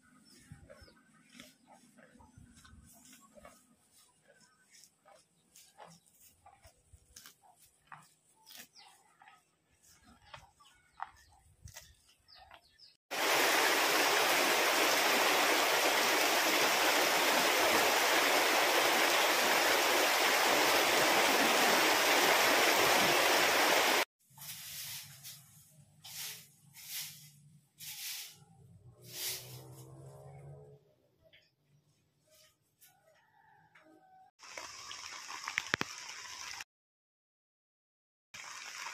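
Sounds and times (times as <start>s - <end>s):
buffalo chewing grass: 0.1s - 12.5s.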